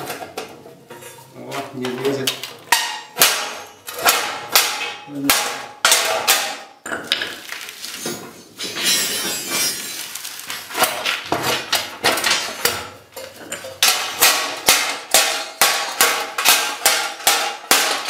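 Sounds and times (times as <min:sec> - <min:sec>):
metal rods scraping and rattling: 0:07.3 - 0:14.1
hammer striking steel rod: 0:13.8 - 0:18.0.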